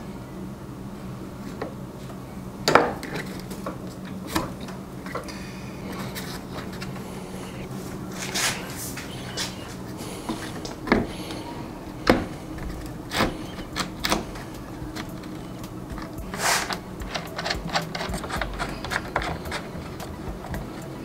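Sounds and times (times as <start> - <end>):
plastic fan shroud knocking: 10.3 - 21.0.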